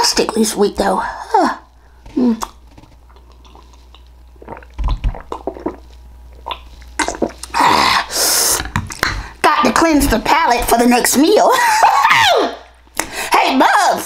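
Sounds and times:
person sipping and gulping water: 0:02.1 - 0:09.3
mouth clicks: 0:02.3 - 0:07.6.

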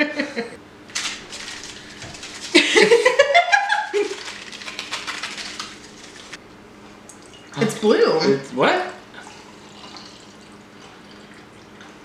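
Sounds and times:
foil pouch crinkling: 0:00.9 - 0:03.2, 0:03.8 - 0:06.4.

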